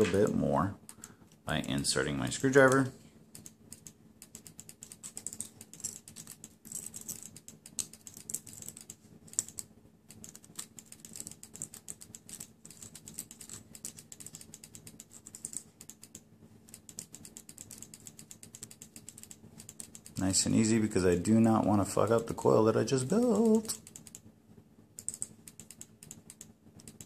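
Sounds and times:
faint low hum: 0:00.0 - 0:27.0
rapid light clicking: 0:02.5 - 0:20.3, 0:23.2 - 0:24.2, 0:25.0 - 0:27.0.

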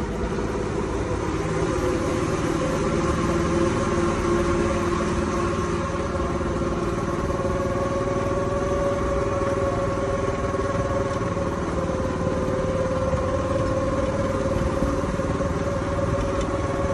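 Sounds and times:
small engine running: 0:00.0 - 0:16.9.

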